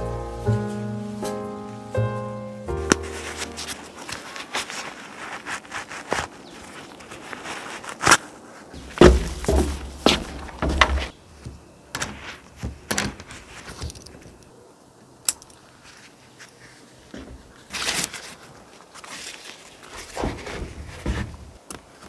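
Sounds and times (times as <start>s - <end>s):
nylon fabric rustling: 0.0s - 11.2s, 15.8s - 21.6s
cord stuffed into a pouch: 2.9s - 8.7s.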